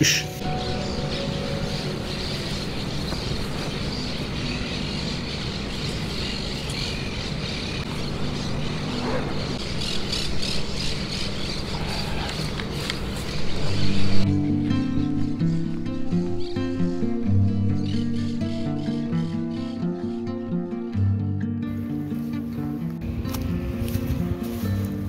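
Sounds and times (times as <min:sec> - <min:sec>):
vehicle engine hum: 0:00.0 - 0:14.4
wind and road noise: 0:00.4 - 0:14.3, 0:22.8 - 0:25.0.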